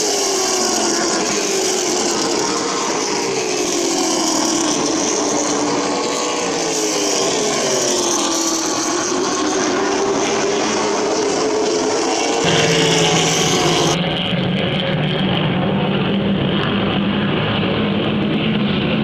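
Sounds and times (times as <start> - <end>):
race car engines: 0.0 - 14.3.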